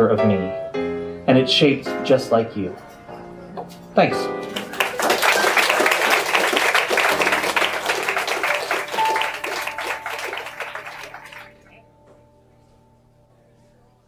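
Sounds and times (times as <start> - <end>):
audience applauding: 4.4 - 11.8
sustained music chord: 7.0 - 11.8.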